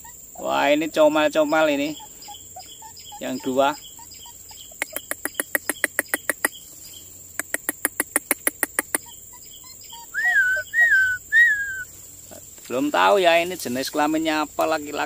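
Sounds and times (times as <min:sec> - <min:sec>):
insect drone: 0:00.0 - 0:15.0
bird clicking trill: 0:01.8 - 0:11.9
bird whistled notes: 0:09.0 - 0:11.9.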